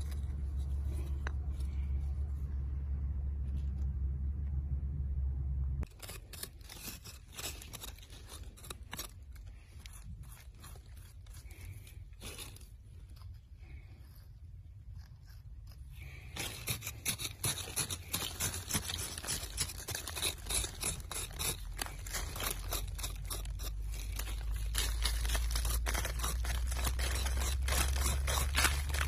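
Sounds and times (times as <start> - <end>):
hand tool scraping gravelly soil: 0.0 - 2.2, 5.8 - 29.0
low steady hum: 0.0 - 29.0.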